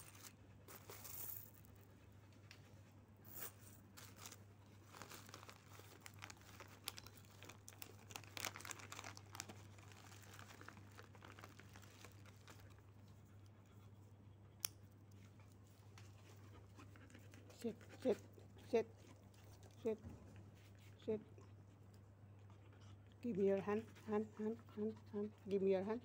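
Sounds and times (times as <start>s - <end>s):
faint clicks and rustles: 0.0s - 13.6s
low steady hum: 0.0s - 26.0s.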